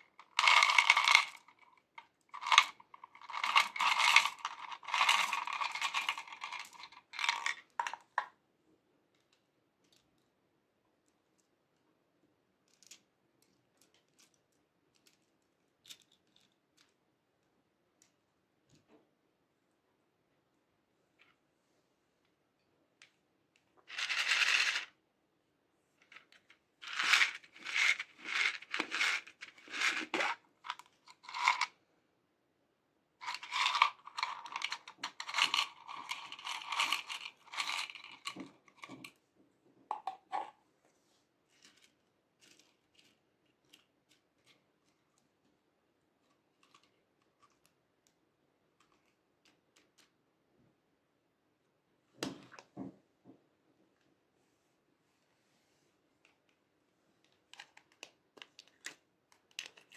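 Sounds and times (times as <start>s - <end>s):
small plastic pieces rattling: 0.1s - 1.7s, 2.4s - 8.0s, 23.9s - 24.9s, 26.8s - 31.7s, 33.2s - 39.1s, 57.5s - 59.9s
plastic capsule opening crackle: 57.5s - 59.9s.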